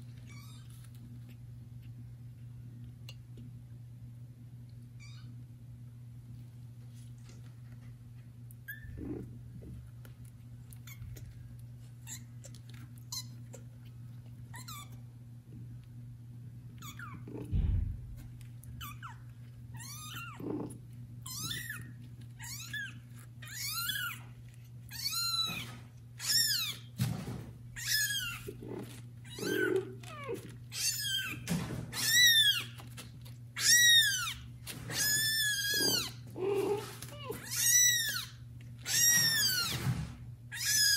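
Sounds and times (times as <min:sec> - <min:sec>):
soft thump: 0:17.5 - 0:18.2.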